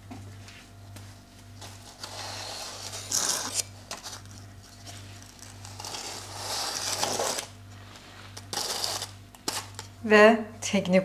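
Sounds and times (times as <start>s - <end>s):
baking paper crinkling: 1.3s - 9.9s
crisp meringue scraping: 1.7s - 9.8s.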